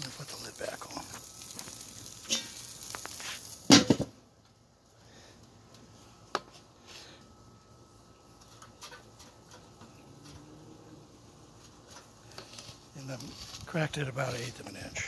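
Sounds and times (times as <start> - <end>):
ribs sizzling on grill: 0.0 - 15.0
metal grill lid clank: 2.2 - 2.6, 3.7 - 4.2.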